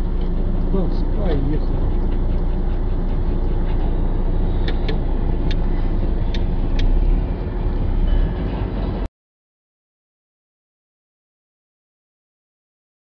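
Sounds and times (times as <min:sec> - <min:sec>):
road and engine noise inside car: 0:00.0 - 0:09.1.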